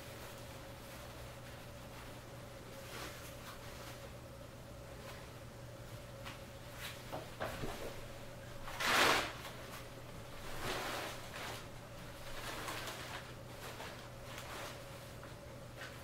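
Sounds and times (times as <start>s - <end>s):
faint steady hum: 0.0s - 16.0s
fabric rustling and swishing: 8.7s - 15.2s.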